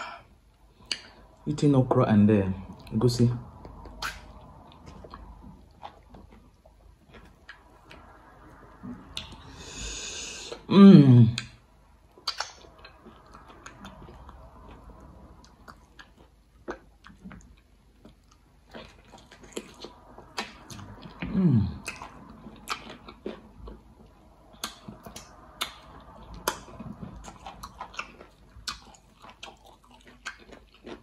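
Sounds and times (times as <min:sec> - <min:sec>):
falling hum: 0:00.0 - 0:29.9
wet chewing: 0:03.5 - 0:08.2, 0:12.1 - 0:31.0
lip smacks: 0:03.6 - 0:05.3, 0:12.1 - 0:14.0.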